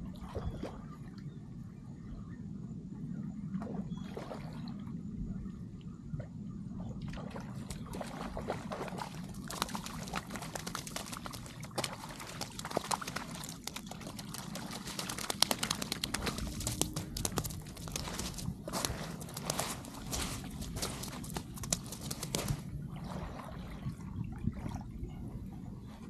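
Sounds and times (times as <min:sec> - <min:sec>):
feet stepping into water: 0:07.2 - 0:23.9
fish thrashing at water surface: 0:07.7 - 0:22.7
water trickling: 0:09.2 - 0:23.8.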